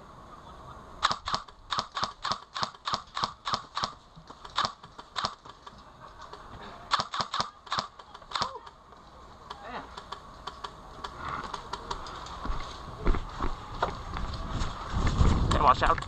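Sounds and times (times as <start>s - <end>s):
airsoft rifle shots: 1.0s - 5.6s, 6.9s - 8.7s.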